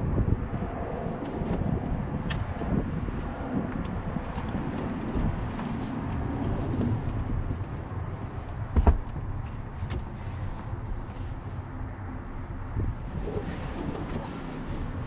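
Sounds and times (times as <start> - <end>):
steady low rumble: 0.0 - 15.0
fabric rustling: 8.2 - 11.6
sharp thump: 8.8 - 9.3.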